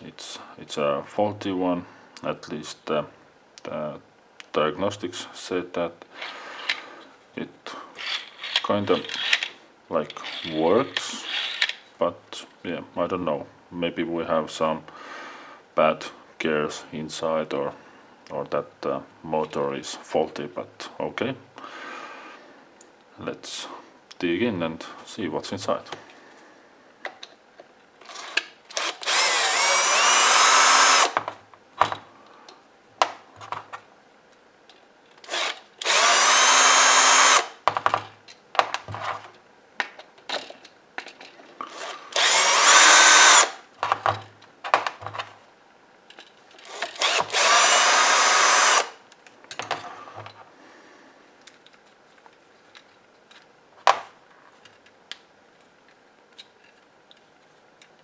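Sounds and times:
cordless drill running: 0:28.2 - 0:31.2, 0:35.3 - 0:37.6, 0:41.7 - 0:43.6, 0:46.7 - 0:49.0.

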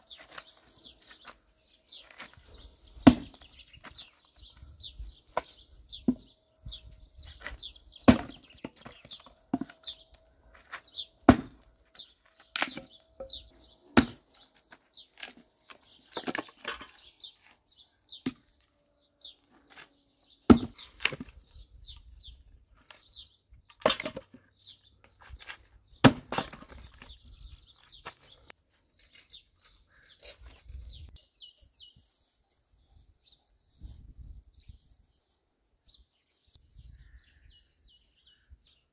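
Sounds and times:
birds chirping: 0:00.0 - 0:38.9
axe splitting firewood: 0:03.0 - 0:03.9, 0:07.4 - 0:09.9, 0:10.6 - 0:11.7, 0:12.4 - 0:14.4, 0:15.0 - 0:17.0, 0:20.5 - 0:21.4, 0:23.8 - 0:24.4, 0:25.3 - 0:27.1.

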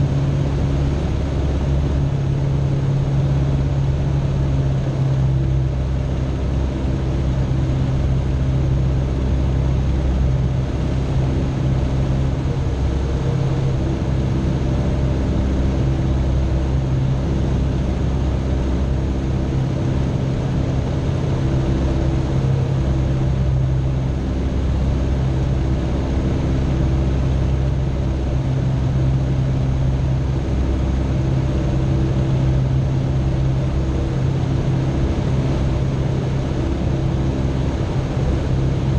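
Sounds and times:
light aircraft engine droning: 0:00.0 - 0:38.9.

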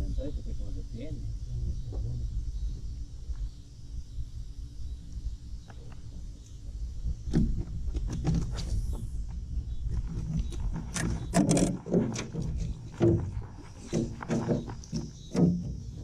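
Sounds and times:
steady low rumble: 0:00.0 - 0:11.4
knocks and clatters in a boat: 0:07.3 - 0:08.7, 0:09.9 - 0:16.0.

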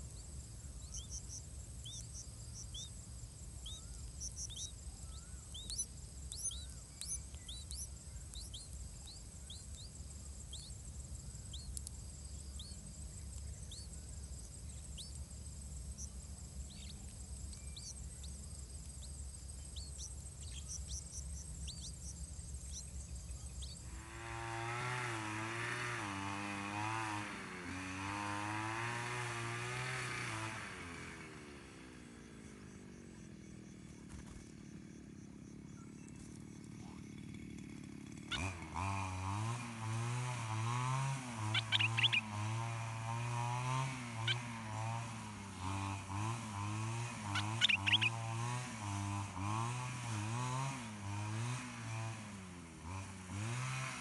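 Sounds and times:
low steady hum: 0:00.0 - 0:24.7
grass cutter engine running: 0:00.1 - 0:54.0.

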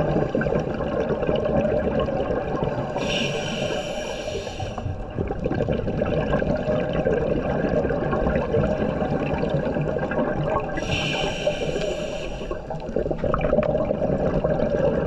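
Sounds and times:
underwater gurgling bubbles: 0:00.0 - 0:15.0
regulator inhalation hiss: 0:03.0 - 0:04.9, 0:10.8 - 0:12.7.

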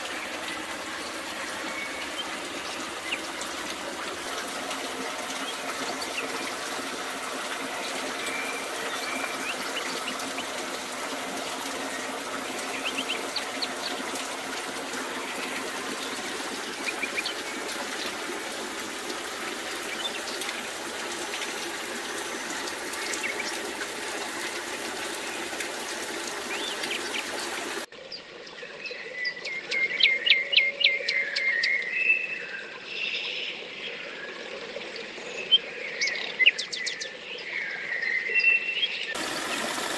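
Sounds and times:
water splashing into a pool: 0:00.0 - 0:27.9, 0:39.1 - 0:39.9
songbird singing: 0:00.0 - 0:34.3, 0:34.9 - 0:39.9.

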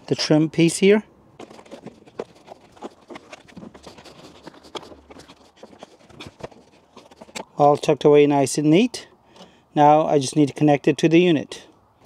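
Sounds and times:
rustling: 0:01.3 - 0:08.0.

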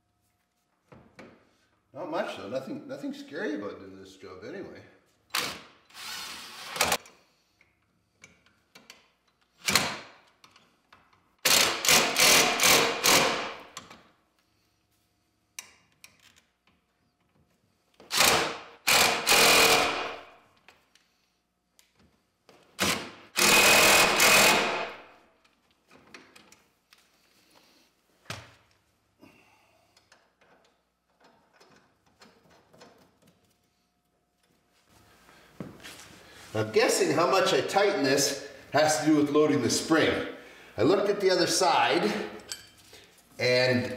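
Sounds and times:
impact wrench rattling: 0:18.1 - 0:20.3.

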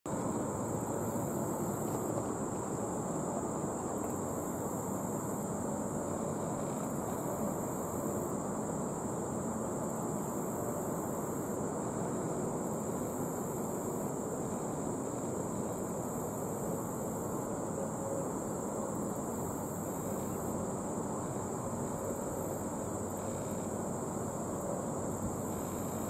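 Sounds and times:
insect drone: 0:00.1 - 0:26.0
insect buzzing call: 0:18.4 - 0:26.0.

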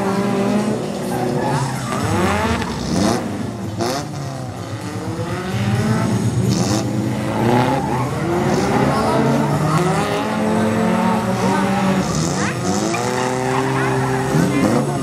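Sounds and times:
truck engines revving: 0:00.0 - 0:15.0.

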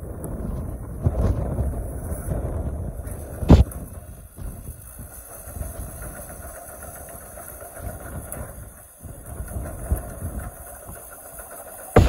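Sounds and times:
excavator diesel engine running: 0:03.0 - 0:12.0.

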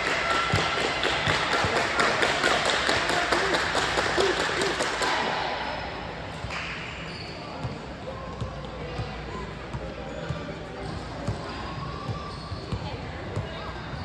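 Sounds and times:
spectators clapping: 0:00.0 - 0:05.4.

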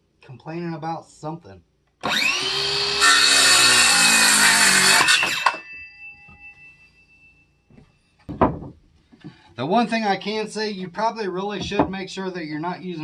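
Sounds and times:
saw motor winding down: 0:02.0 - 0:05.6
circular saw cutting wood: 0:02.0 - 0:05.7.

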